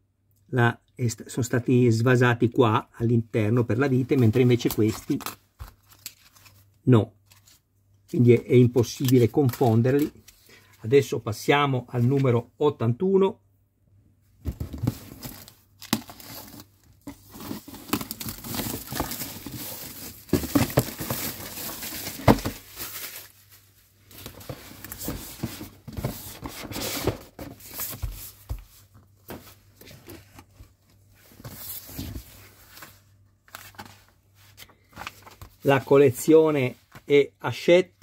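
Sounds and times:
box and magazine handled: 0:08.8 - 0:10.4, 0:14.5 - 0:23.3
plastic wrap crinkling: 0:15.1 - 0:25.1.

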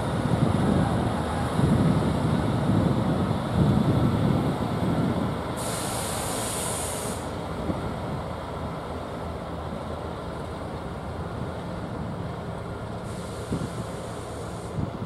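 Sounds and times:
diesel locomotive engines rumbling: 0:00.0 - 0:15.0
high hiss: 0:05.6 - 0:07.4.

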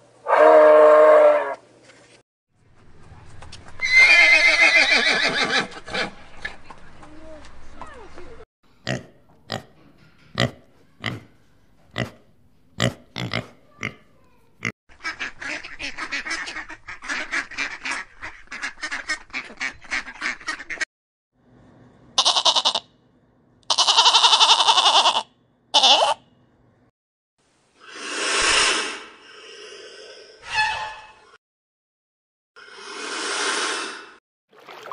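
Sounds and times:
ducks quacking: 0:14.9 - 0:20.8
goats bleating: 0:22.2 - 0:22.8, 0:23.7 - 0:25.2, 0:25.8 - 0:26.2.

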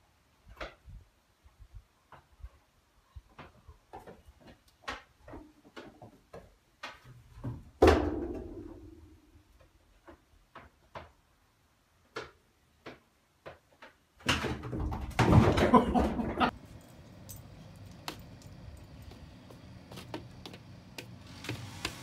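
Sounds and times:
goat hooves clicking on tyres: 0:16.5 - 0:22.0.

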